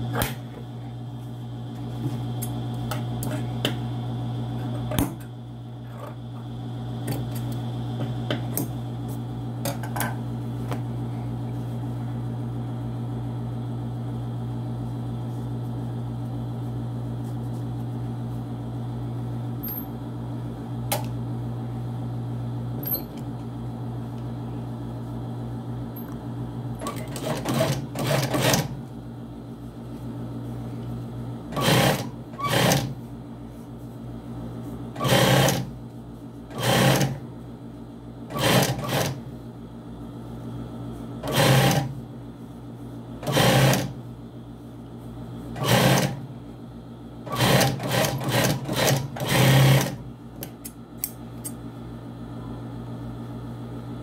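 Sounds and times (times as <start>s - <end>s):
sewing machine motor hum: 26.7s - 28.8s, 31.5s - 33.0s, 34.9s - 35.8s, 36.5s - 37.3s, 38.3s - 39.3s, 41.1s - 42.0s, 43.2s - 44.0s, 45.5s - 46.3s, 47.2s - 50.1s
sewing machine stitching: 26.8s - 28.7s, 31.5s - 32.9s, 35.0s - 35.7s, 36.5s - 37.2s, 38.3s - 39.2s, 41.2s - 41.9s, 43.2s - 43.9s, 45.6s - 46.2s, 47.3s - 50.0s.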